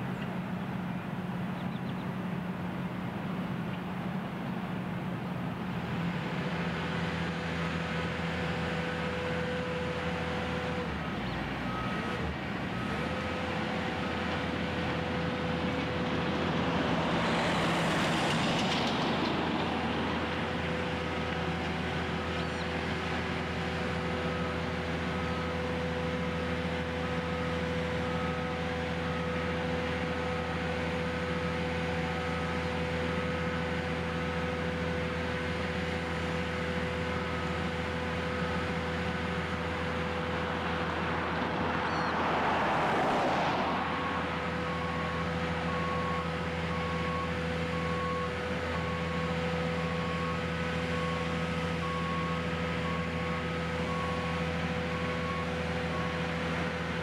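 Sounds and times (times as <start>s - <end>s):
diesel machinery humming: 0.0s - 57.0s
vehicle passing close: 15.0s - 21.2s, 39.0s - 46.2s.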